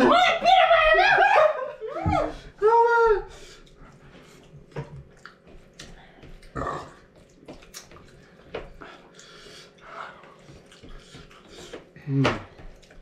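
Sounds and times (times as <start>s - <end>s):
wet chewing smacks and clicks: 4.7s - 11.9s.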